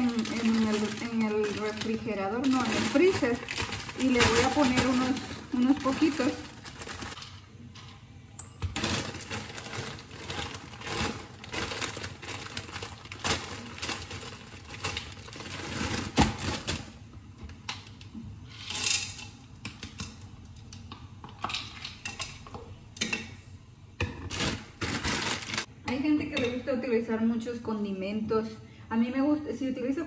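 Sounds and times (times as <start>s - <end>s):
frozen peas clicking and rattling: 0.0s - 7.2s, 8.8s - 17.0s
plastic bag rustling: 0.0s - 7.2s, 8.7s - 17.1s, 24.2s - 25.7s.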